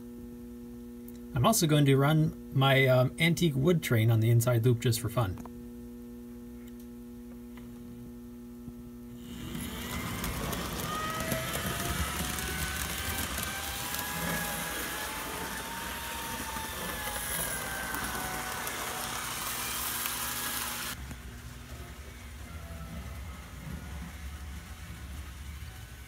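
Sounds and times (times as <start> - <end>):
power pack hum: 9.0 - 26.0
model train motor whine: 9.2 - 26.0
wheels rattling on track: 9.3 - 18.0.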